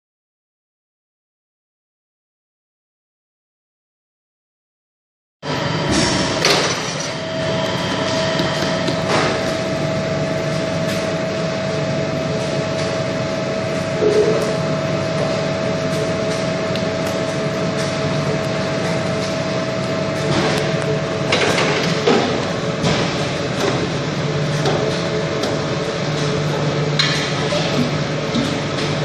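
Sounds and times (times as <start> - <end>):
machinery humming: 5.4 - 29.0
steady machine whine: 5.4 - 29.0.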